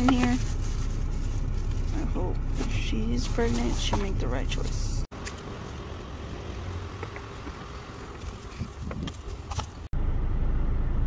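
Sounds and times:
wind buffeting microphone: 0:06.4 - 0:09.9.

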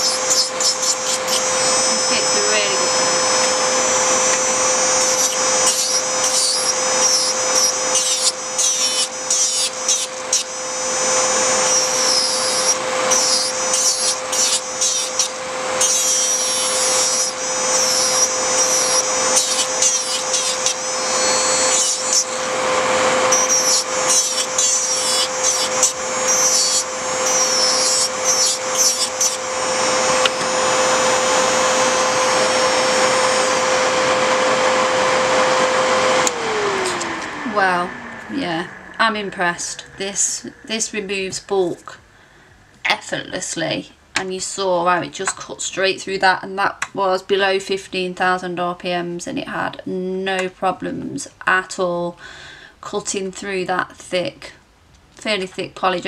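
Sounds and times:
nail file grinding nail: 0:00.0 - 0:31.3
electric nail file motor hum: 0:00.0 - 0:41.6
dust collector fan: 0:00.0 - 0:42.7.

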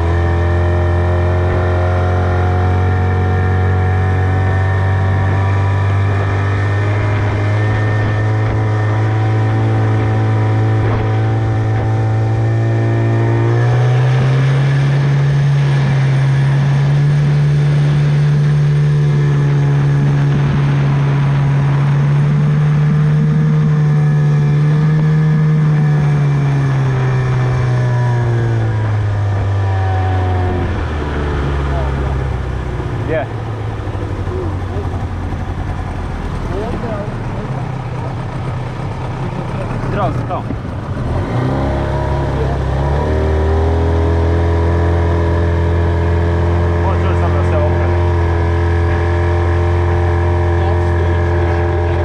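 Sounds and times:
outboard motor running: 0:00.0 - 0:52.0.

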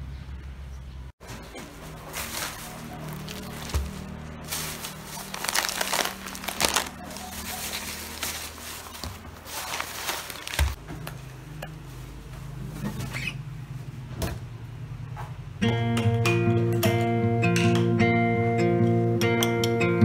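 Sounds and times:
plastic bag rustling: 0:01.2 - 0:10.8
acoustic guitar music: 0:15.6 - 0:20.0.

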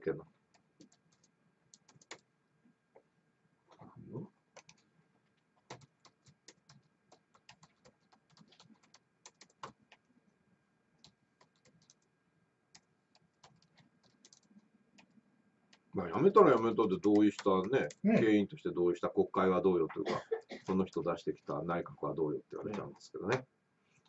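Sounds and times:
typing on laptop keyboard: 0:00.5 - 0:02.3, 0:04.5 - 0:04.9, 0:05.6 - 0:10.0, 0:11.0 - 0:12.1, 0:12.7 - 0:18.0.

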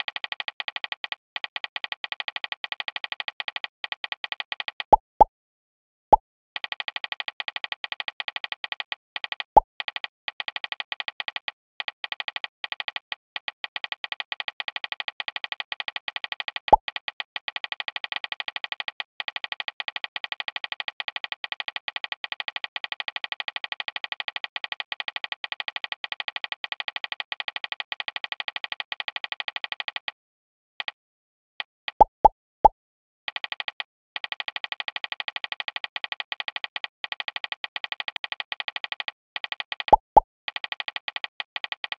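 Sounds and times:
phone keyboard typing clicks: 0:37.1 - 0:41.9.

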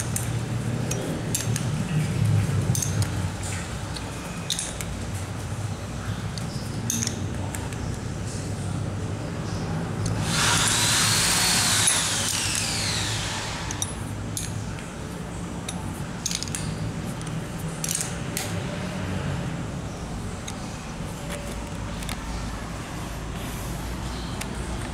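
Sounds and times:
spanner clicking on nuts: 0:00.0 - 0:01.7, 0:02.7 - 0:03.2, 0:03.9 - 0:04.9, 0:06.4 - 0:07.7, 0:10.0 - 0:14.6, 0:15.7 - 0:18.5.

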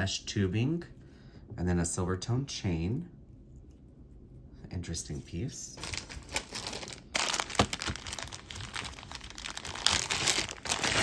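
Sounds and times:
packaging crinkling: 0:05.8 - 0:11.0.

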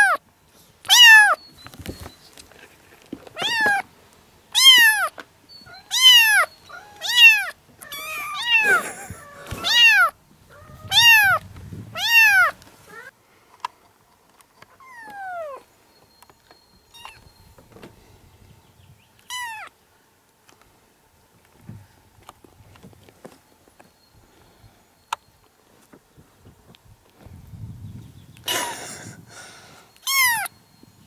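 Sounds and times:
kittens meowing: 0:00.9 - 0:01.4, 0:03.3 - 0:03.8, 0:04.6 - 0:13.1, 0:14.8 - 0:15.6, 0:16.9 - 0:17.3, 0:19.2 - 0:19.7, 0:30.0 - 0:30.5.

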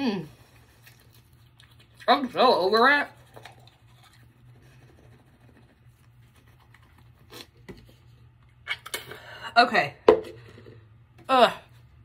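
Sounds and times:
toothbrush scrubbing teeth: 0:00.4 - 0:07.6.

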